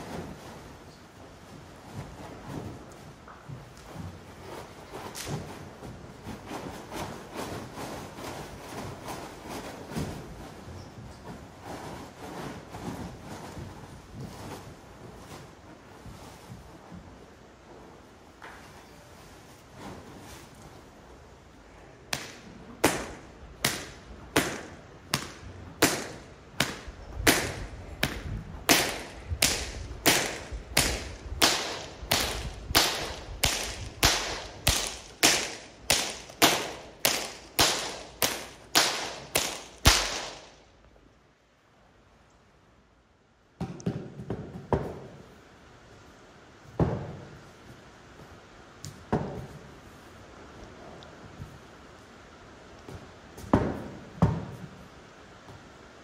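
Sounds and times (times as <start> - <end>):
whip cracks: 22.1 - 40.6.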